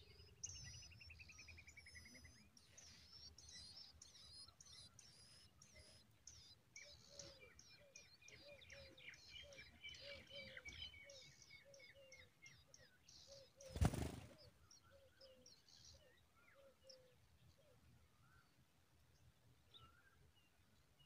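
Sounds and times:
small birds chirping: 0:00.0 - 0:21.0
bird wings fluttering: 0:13.7 - 0:14.4.

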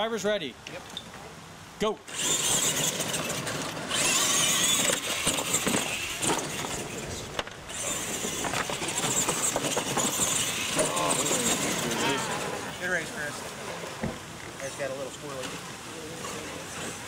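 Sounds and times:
electric motor and gear whine: 0:02.1 - 0:13.2
trucks knocking on ramps: 0:04.6 - 0:12.6.

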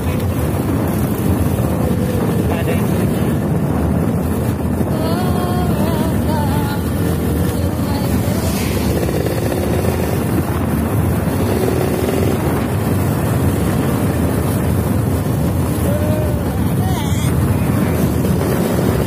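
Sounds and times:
vehicle road noise: 0:00.0 - 0:19.0
wind buffeting microphone: 0:00.0 - 0:19.0.

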